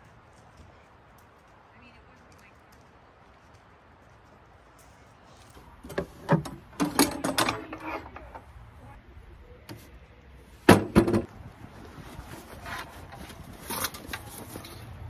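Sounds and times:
metal table legs clanking: 0:05.9 - 0:08.4.

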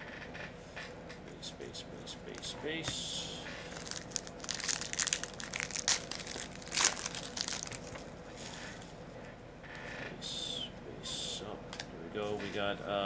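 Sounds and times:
wrapper crinkling and tearing: 0:03.7 - 0:08.8.

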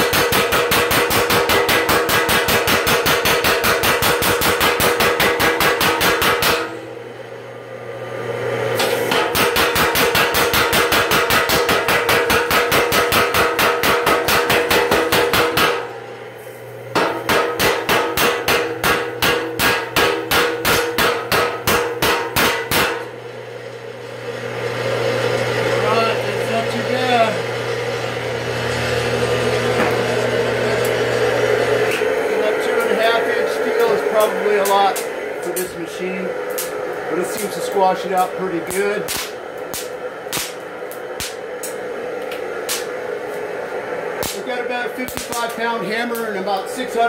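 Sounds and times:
power hammer striking metal: 0:00.0 - 0:06.9, 0:08.8 - 0:16.0, 0:16.9 - 0:23.2, 0:29.6 - 0:31.0, 0:32.8 - 0:35.8, 0:36.4 - 0:43.0, 0:44.2 - 0:46.3
machine drive humming: 0:00.0 - 0:47.0.

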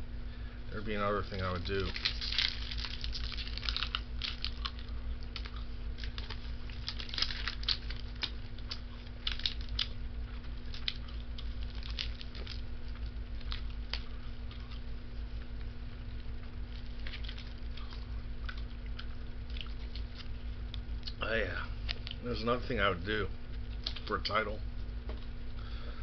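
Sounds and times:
steady low hum: 0:00.0 - 0:26.0
wet chewing mouth clicks: 0:02.0 - 0:21.2.

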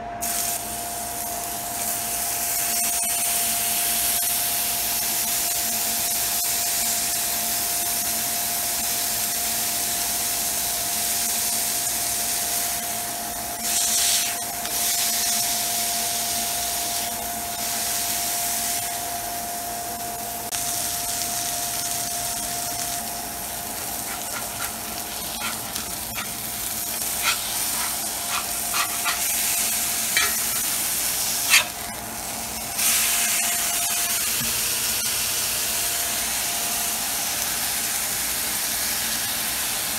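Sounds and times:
burger patty sizzling in a skillet: 0:00.2 - 0:39.9
metal utensil scraping a pan: 0:23.8 - 0:31.9.

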